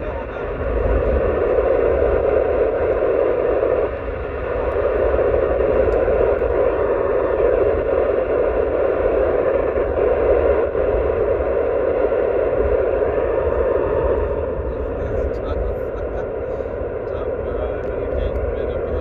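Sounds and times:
low road rumble: 0.0 - 19.0
radio receiver hiss: 0.0 - 19.0.

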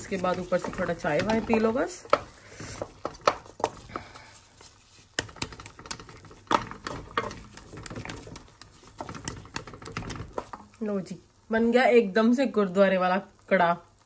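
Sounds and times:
wooden spatula scraping metal pan: 0.0 - 10.7.

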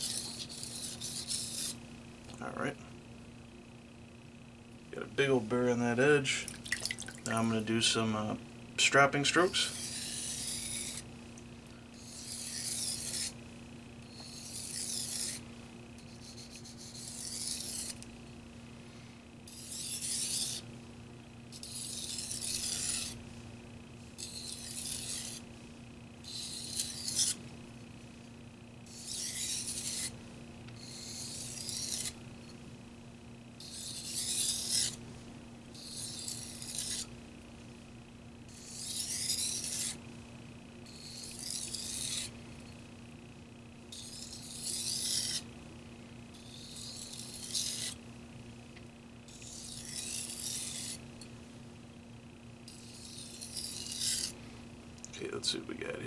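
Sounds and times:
knife scraping on whetstone: 0.0 - 1.8, 9.5 - 11.1, 12.0 - 13.4, 14.1 - 15.4, 16.0 - 18.0, 19.5 - 20.7, 21.5 - 23.2, 24.2 - 25.4, 26.3 - 27.4, 28.9 - 30.2, 30.8 - 32.6, 33.6 - 35.0, 35.8 - 37.1, 38.5 - 40.0, 40.9 - 42.3, 44.0 - 45.5, 46.4 - 48.0, 49.3 - 51.0, 52.7 - 54.4.

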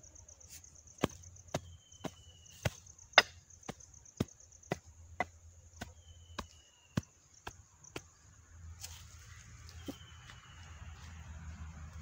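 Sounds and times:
insects chirring: 0.0 - 11.6
digging tool chopping dry soil: 0.9 - 8.9.

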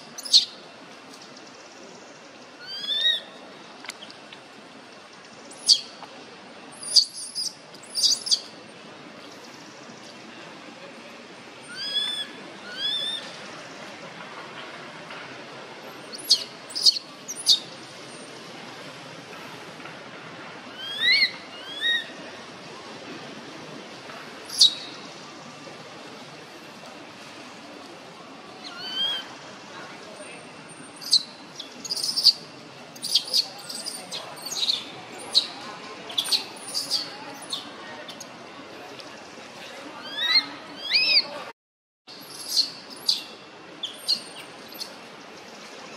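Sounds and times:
baby monkey squealing: 31.8 - 32.3, 33.0 - 35.5.

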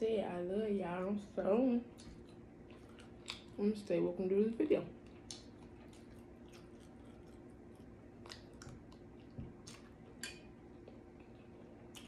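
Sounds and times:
person chewing food: 1.9 - 3.6, 5.0 - 12.0.

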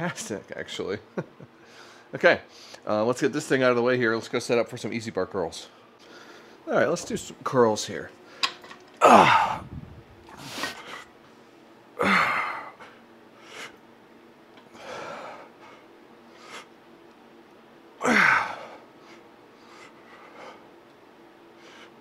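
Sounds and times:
man grunting: 9.0 - 9.7, 12.0 - 12.8, 18.0 - 18.8
man breathing hard: 14.7 - 16.7, 18.0 - 20.7.

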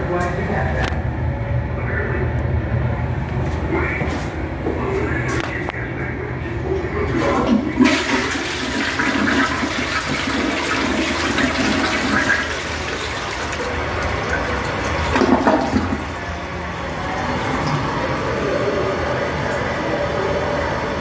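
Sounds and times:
toilet flushing: 6.7 - 21.0
toilet bowl refilling: 7.1 - 18.5.

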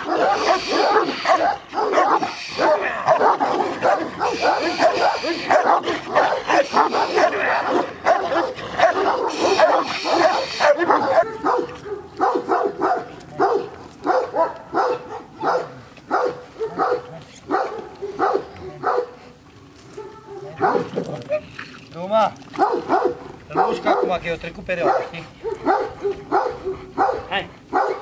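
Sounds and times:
large dogs barking: 0.0 - 21.6, 22.5 - 28.0.

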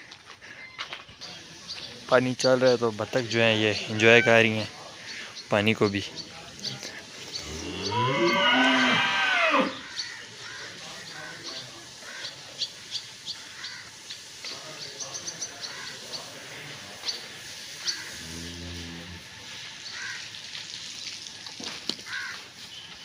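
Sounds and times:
birds chirping: 0.0 - 20.3
cow mooing: 7.4 - 9.8, 18.2 - 19.2.

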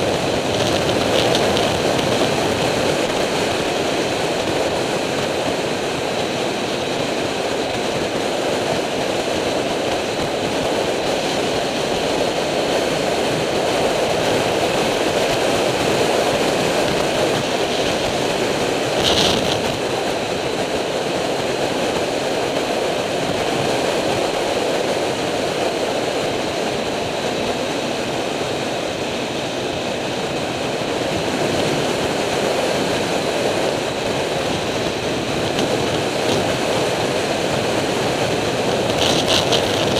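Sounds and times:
motorcycle engine cruising: 0.0 - 5.5, 30.4 - 39.9
wind rushing over microphone: 0.0 - 39.9.

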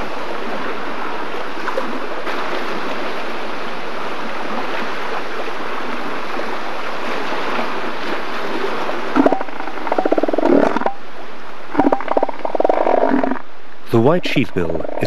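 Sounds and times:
surf rushing: 0.0 - 15.0
elephant seals calling: 9.1 - 11.0, 11.7 - 15.0.

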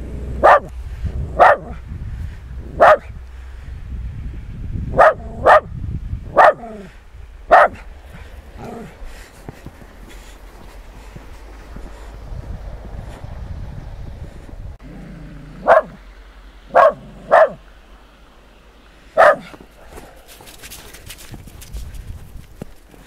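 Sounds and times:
small dog barking: 0.4 - 0.7, 1.4 - 1.8, 2.8 - 3.1, 4.9 - 5.7, 6.3 - 6.9, 7.5 - 7.9, 15.6 - 16.0, 16.7 - 17.6, 19.2 - 20.2.

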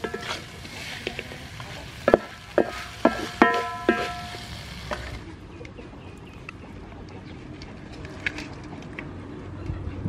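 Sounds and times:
metal spatula clanging on wok: 0.0 - 1.2, 2.0 - 4.5
low frying sizzle: 0.0 - 5.4.

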